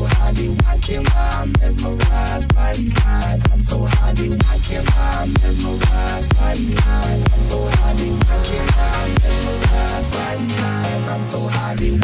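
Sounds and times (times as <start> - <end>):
electronic dance music: 0.0 - 12.0.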